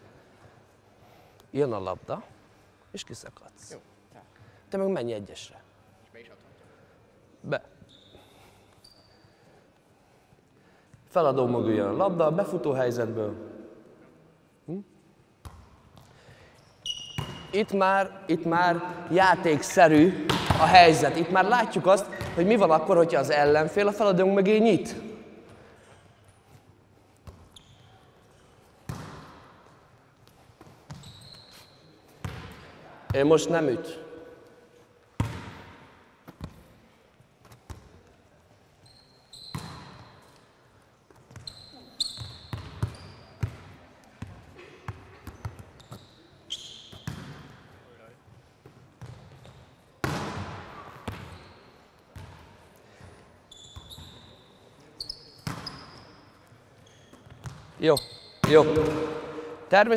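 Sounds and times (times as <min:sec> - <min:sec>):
sneakers squeaking on court floor: 0:07.8 - 0:09.4, 0:15.4 - 0:17.7, 0:20.2 - 0:21.3, 0:22.0 - 0:22.6, 0:25.0 - 0:32.8, 0:37.4 - 0:47.8, 0:48.5 - 0:59.5
volleyball impacts echoing: 0:18.5 - 0:23.8, 0:28.7 - 0:31.0, 0:32.2 - 0:36.8, 0:46.9 - 0:47.9, 0:48.6 - 0:51.4, 0:58.4 - 0:59.9
volleyball hits echoing: 0:19.9 - 0:21.2, 0:50.0 - 0:51.4, 0:58.4 - 0:59.7.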